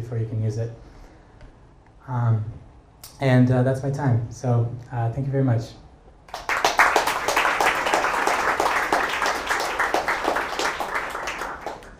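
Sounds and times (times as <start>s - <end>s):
audience applauding: 6.3s - 11.9s.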